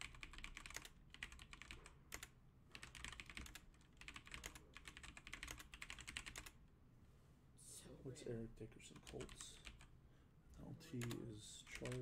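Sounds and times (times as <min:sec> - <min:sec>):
typing on computer keyboard: 0:00.0 - 0:06.6, 0:09.0 - 0:09.9, 0:11.0 - 0:12.0.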